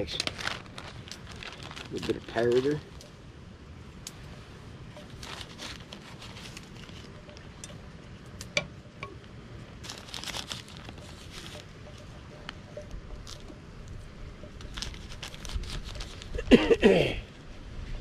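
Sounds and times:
plastic packaging crinkling: 0.0 - 3.0, 5.0 - 7.5, 9.8 - 12.1, 14.6 - 16.5.

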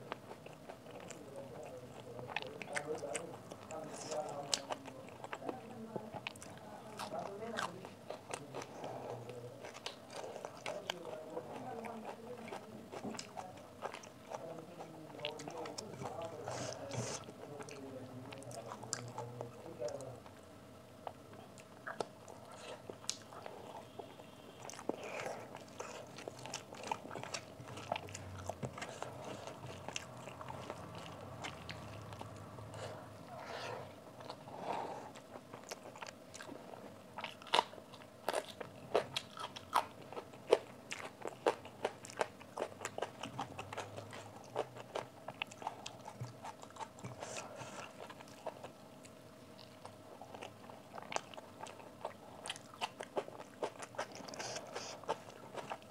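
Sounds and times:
crunching and chewing food: 0.0 - 55.9.

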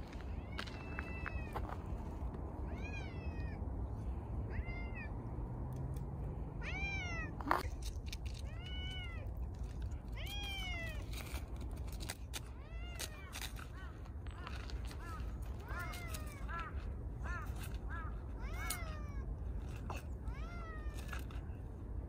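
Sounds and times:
cats meowing: 2.6 - 3.7, 4.4 - 5.2, 6.6 - 7.7, 8.4 - 11.2, 12.5 - 21.3.

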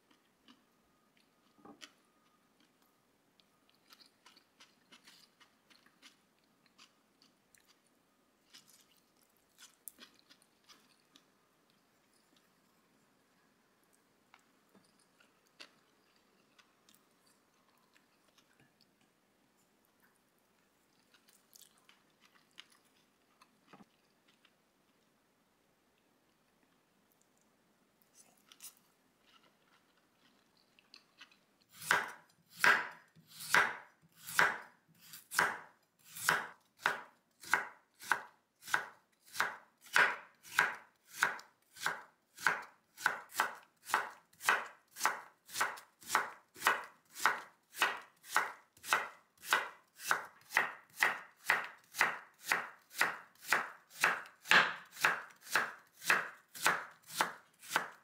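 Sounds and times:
knife slicing on cutting board: 31.8 - 58.0.

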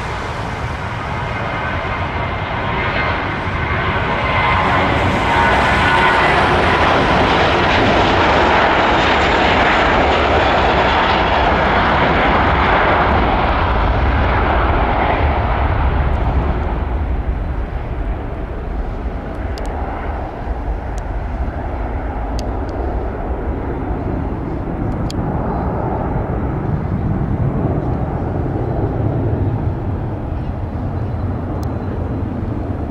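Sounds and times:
jet engines roaring at takeoff: 0.0 - 32.9.

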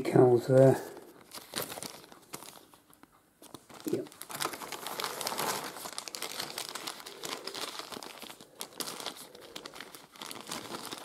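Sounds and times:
plastic bags crinkling: 0.1 - 11.0.

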